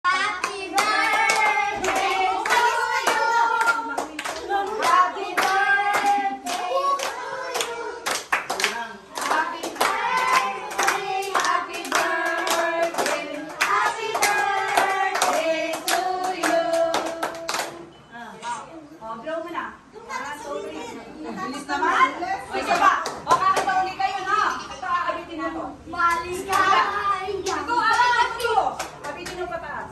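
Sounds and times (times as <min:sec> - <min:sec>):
group singing birthday song: 0:00.0 - 0:18.1, 0:25.4 - 0:29.0
hands clapping: 0:00.4 - 0:17.8.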